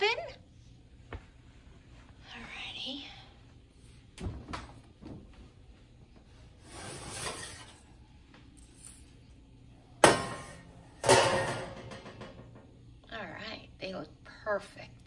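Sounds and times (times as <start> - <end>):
baking sheet sliding out of oven: 6.6 - 7.9.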